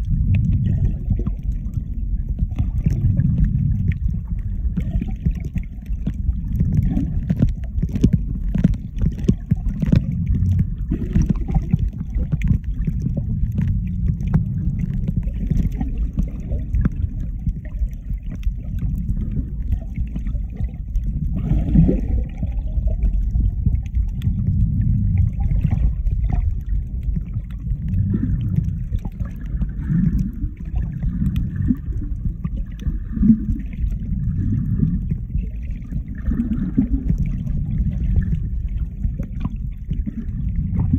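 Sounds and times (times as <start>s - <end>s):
bubbly gurgles: 0.0s - 40.9s
underwater rumble of moving water: 0.0s - 40.9s
faint clicks: 1.3s - 20.2s.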